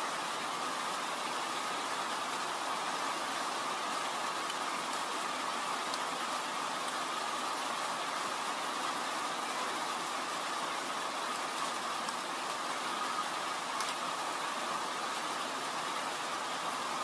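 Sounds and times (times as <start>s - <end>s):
steady rain: 0.0s - 17.0s
faint clicks: 13.8s - 14.0s.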